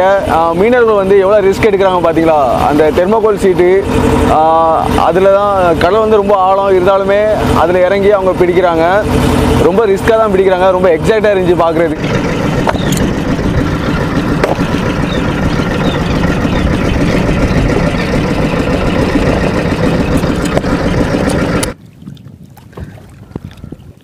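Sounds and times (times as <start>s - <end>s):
boat engine running: 0.0s - 24.0s
water: 0.0s - 24.0s
wind on microphone: 12.0s - 24.0s.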